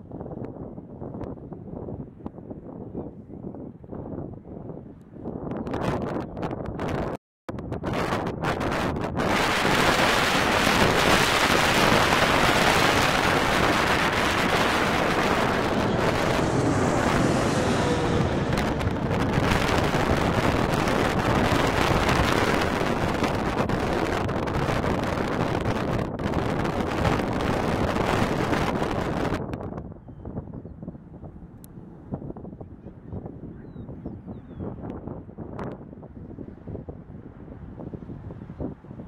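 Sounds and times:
wind buffeting microphone: 0.0 - 39.0
jet plane passing overhead: 9.2 - 25.5.

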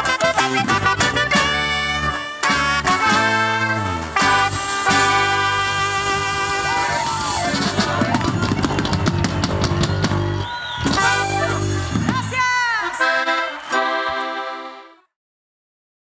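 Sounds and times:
live band music: 0.0 - 15.1
rapid drum hits: 4.1 - 12.6.

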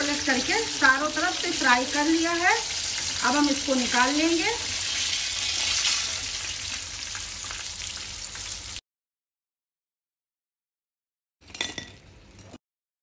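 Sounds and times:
food sizzling in hot oil: 0.0 - 8.8.

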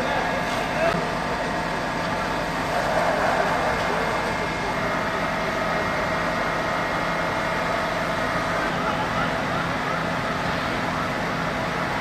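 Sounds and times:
fire truck engines droning: 0.0 - 12.0.

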